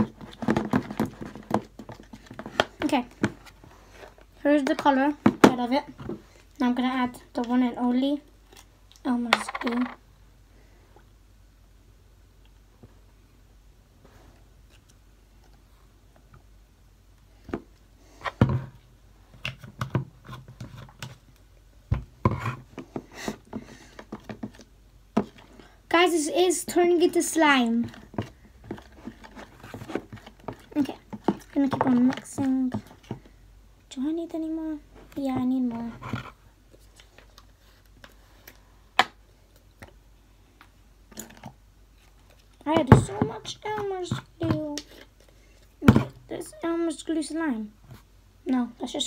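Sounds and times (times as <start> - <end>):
knocks and scrapes on plastic tub: 0.0 - 3.5, 21.9 - 25.4
utensil stirring slime: 22.2 - 33.2.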